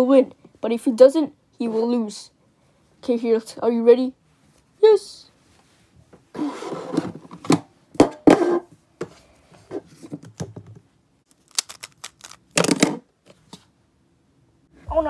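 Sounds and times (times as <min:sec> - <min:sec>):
plastic puzzle cube clicking turns: 0:11.3 - 0:12.8.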